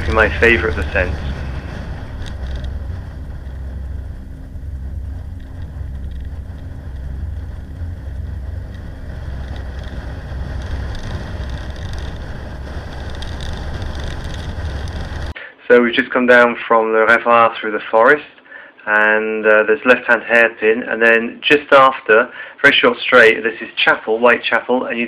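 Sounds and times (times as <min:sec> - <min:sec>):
road noise: 0:00.0 - 0:15.4
wind rumbling on microphone: 0:00.0 - 0:15.4.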